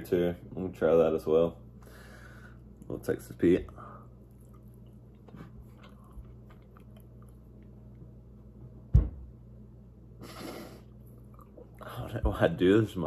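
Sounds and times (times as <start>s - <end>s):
man chewing: 3.9s - 8.2s, 10.2s - 11.9s
sharp thump: 8.9s - 9.3s.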